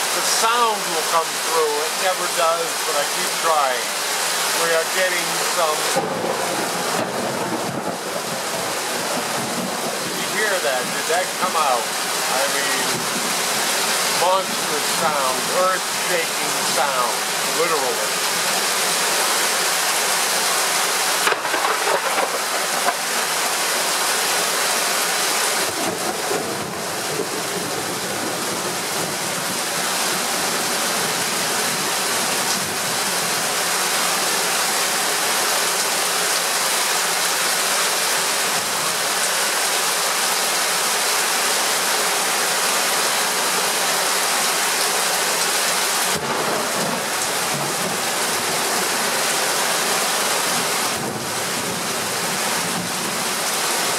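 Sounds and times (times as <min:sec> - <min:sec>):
heavy rain pouring: 0:00.0 - 0:53.9.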